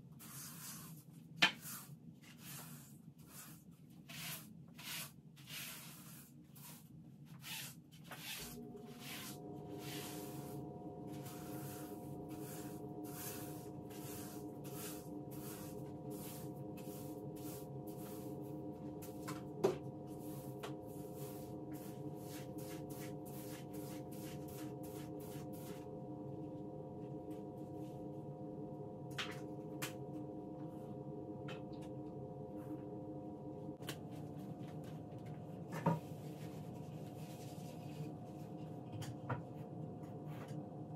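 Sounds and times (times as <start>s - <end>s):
scrubbing strokes: 0.2s - 19.3s, 20.1s - 25.8s
appliance motor hum: 8.3s - 23.3s.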